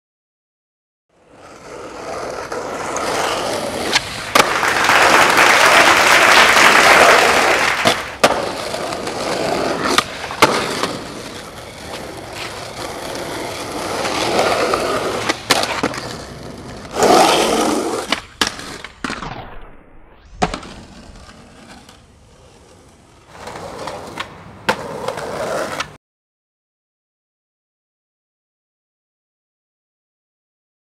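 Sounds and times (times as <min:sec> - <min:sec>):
skateboard wheels rolling on concrete: 0:01.1 - 0:26.0
skateboard tail pops and landings: 0:02.5 - 0:05.3, 0:07.0 - 0:21.9.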